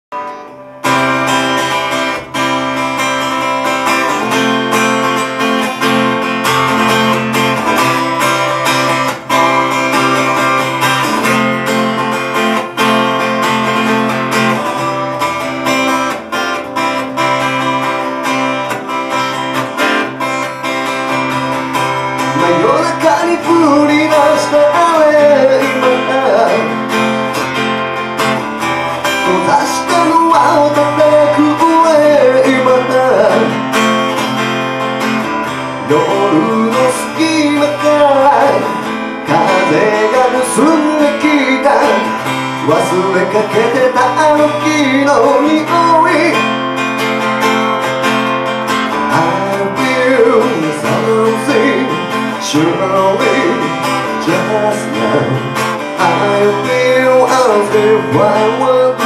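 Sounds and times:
acoustic guitar strumming: 0.1s - 59.0s
person singing: 21.4s - 27.3s, 28.9s - 34.2s, 35.5s - 46.7s, 48.9s - 59.0s.

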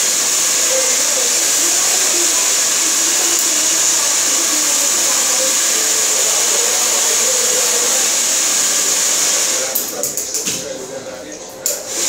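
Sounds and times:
hair dryer blowing: 0.0s - 12.0s.

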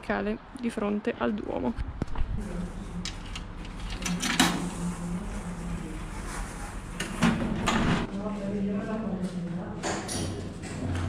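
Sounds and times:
low mechanical hum: 1.8s - 9.8s.

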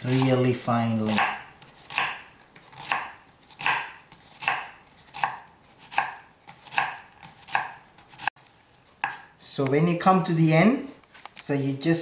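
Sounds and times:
knife chopping onion on board: 0.0s - 8.3s, 9.0s - 9.3s.

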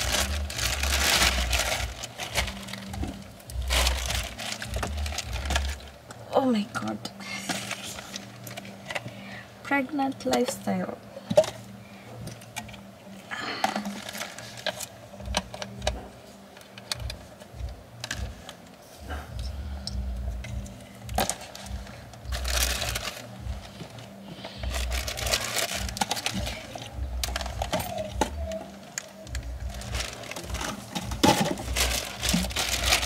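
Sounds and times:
plastic bag rustling: 0.0s - 9.2s, 13.5s - 16.5s, 20.6s - 33.0s
plastic bottles crinkling: 0.0s - 19.2s, 20.4s - 33.0s.

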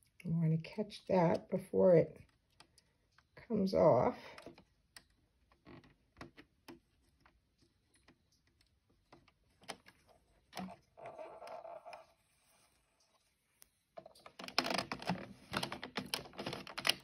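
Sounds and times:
soft rustle: 6.7s - 14.2s
plastic needles clicking: 14.0s - 17.0s.

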